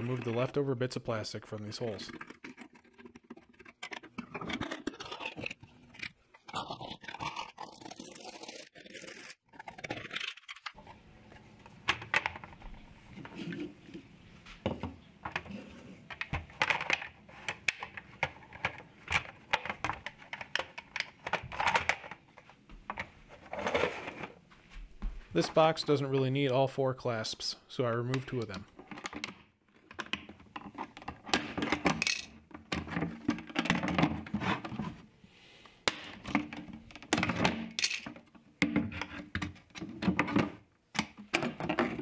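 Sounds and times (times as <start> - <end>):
deburring tool scraping plastic: 1.9 - 11.0.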